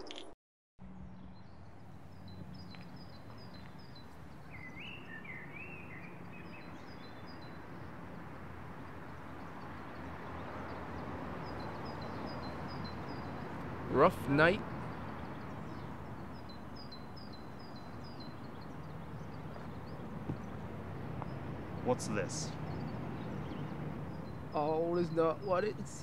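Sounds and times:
small birds chirping: 0:01.0 - 0:26.0
warbling bird phrase: 0:13.9 - 0:14.7, 0:21.8 - 0:22.6, 0:24.5 - 0:26.0.

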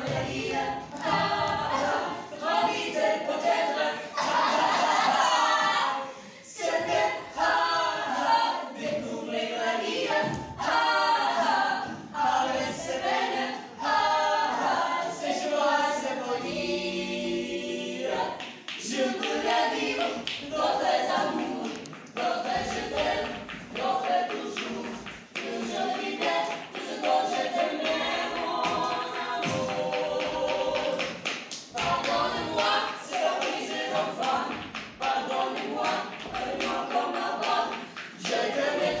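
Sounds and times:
voices singing a cappella: 0:00.0 - 0:39.0.

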